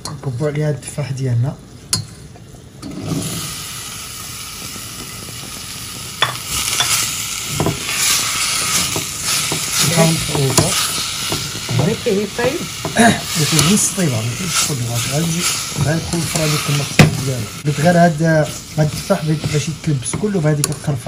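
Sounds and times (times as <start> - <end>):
apples sizzling in a pan: 0.0 - 21.0
scraping knocks of stirring: 6.8 - 12.1, 18.5 - 20.9.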